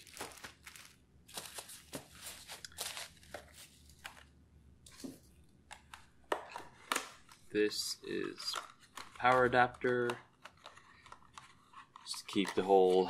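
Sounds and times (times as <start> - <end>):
hands rummaging packing peanuts: 0.0 - 4.2.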